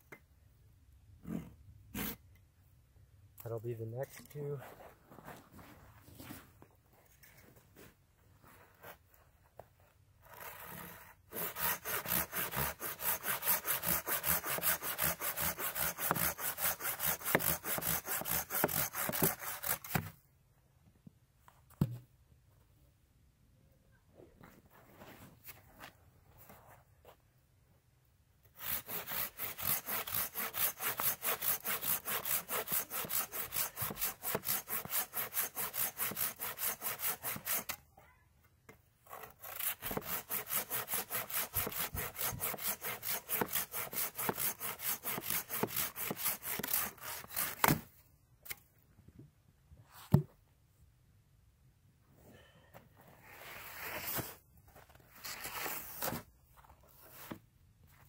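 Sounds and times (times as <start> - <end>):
pruning saw cutting wood: 10.6 - 20.0, 28.6 - 37.8, 39.1 - 47.8.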